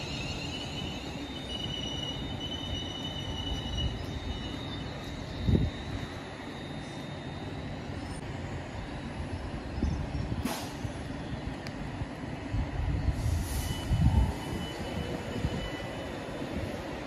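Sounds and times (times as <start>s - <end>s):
electric train rumbling: 0.0s - 17.0s
air brake hiss: 10.4s - 11.0s, 13.1s - 14.2s.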